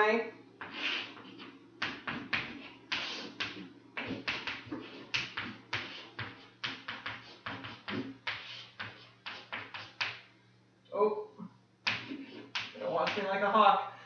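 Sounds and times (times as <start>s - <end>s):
chalk scratching on chalkboard: 0.6s - 10.2s, 11.9s - 13.3s.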